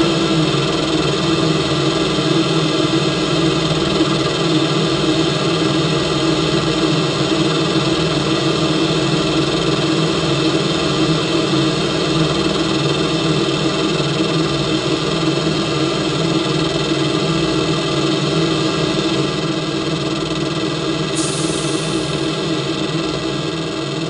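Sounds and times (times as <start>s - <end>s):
car wash mechanical hum: 0.0s - 24.0s
spray hissing: 21.2s - 23.1s.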